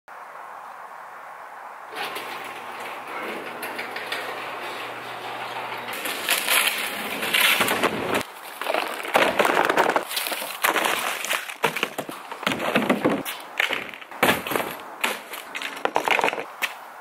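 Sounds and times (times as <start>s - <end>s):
garage door motor hum: 1.9s - 8.2s.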